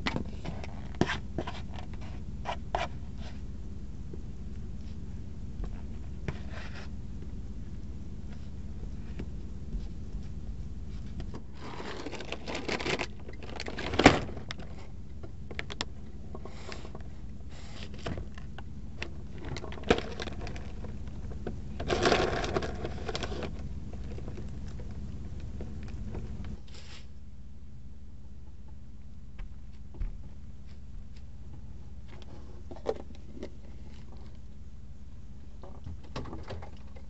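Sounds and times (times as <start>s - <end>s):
low steady hum: 0.0s - 37.0s
plastic bag rustling: 11.4s - 14.7s.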